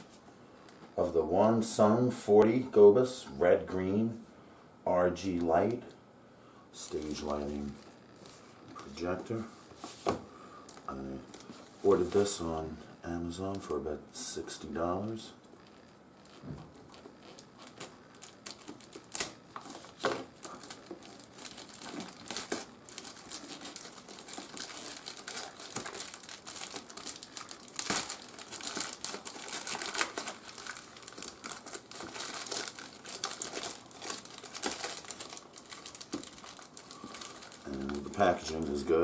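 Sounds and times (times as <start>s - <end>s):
plastic wrapping crackling: 6.8s - 12.3s, 15.4s - 39.0s
plastic bag tearing: 15.6s - 38.9s.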